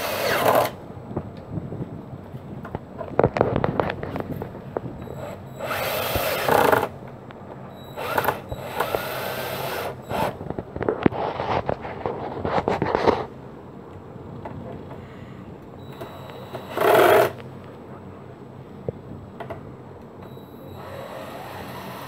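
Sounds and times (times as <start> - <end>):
cordless drill driving screws: 0.0 - 0.8, 5.0 - 6.9, 7.8 - 10.4, 15.9 - 17.4, 20.6 - 22.0.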